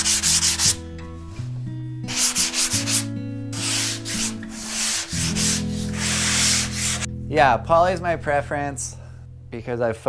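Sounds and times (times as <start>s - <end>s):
hand sanding foam: 0.0s - 0.8s, 2.1s - 7.1s.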